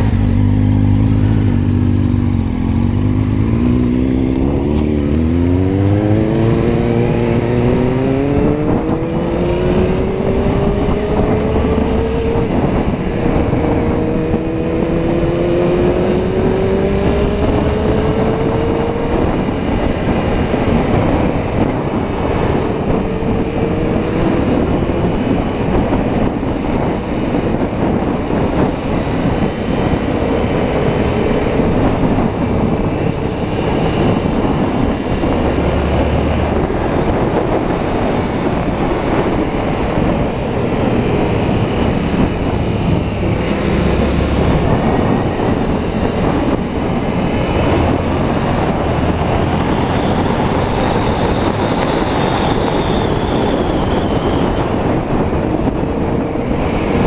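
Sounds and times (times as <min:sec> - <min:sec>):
motorcycle engine running: 0:00.0 - 0:53.7
road rumble: 0:00.0 - 0:57.0
wind rush on microphone: 0:00.0 - 0:57.0.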